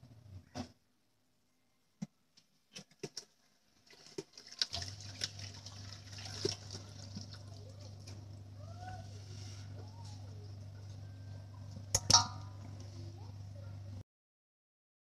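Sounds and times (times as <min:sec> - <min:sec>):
low hum: 0:05.4 - 0:14.0.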